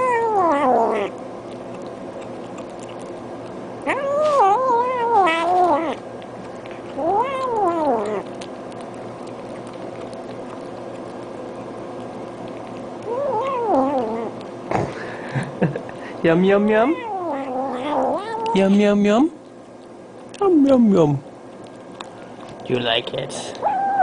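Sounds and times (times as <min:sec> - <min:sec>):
cat meowing: 0:00.0 - 0:01.1, 0:03.8 - 0:06.0, 0:07.0 - 0:08.3, 0:13.0 - 0:14.3, 0:16.8 - 0:18.6, 0:23.6 - 0:24.0.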